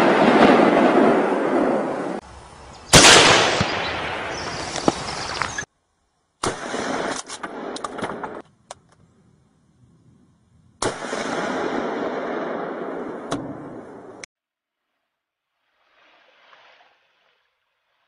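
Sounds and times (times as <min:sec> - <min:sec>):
gunshots: 0:02.9 - 0:04.9, 0:06.4 - 0:08.4, 0:10.8 - 0:14.1.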